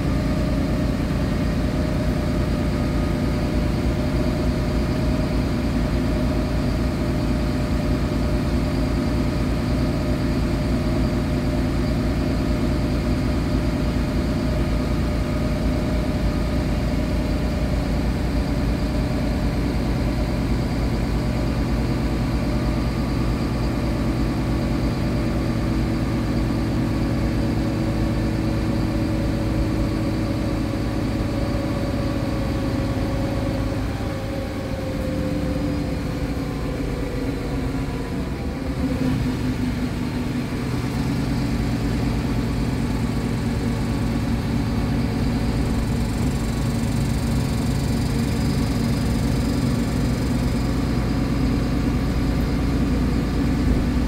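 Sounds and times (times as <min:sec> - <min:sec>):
bus diesel engine idling: 0:00.0 - 0:54.0
whining tone: 0:30.8 - 0:48.5.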